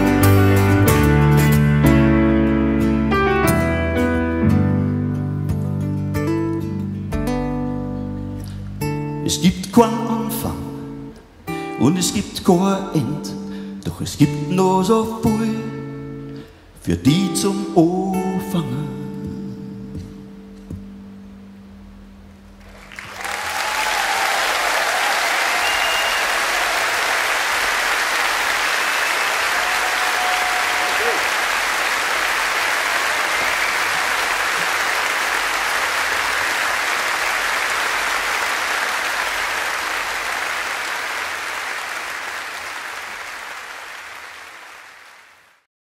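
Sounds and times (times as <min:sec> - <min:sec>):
large audience applauding: 0:22.6 - 0:45.6.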